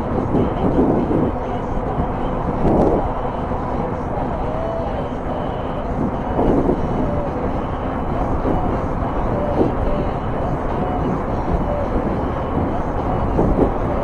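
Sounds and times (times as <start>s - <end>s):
highway traffic noise: 0.0s - 14.0s
wind on microphone: 0.0s - 14.0s.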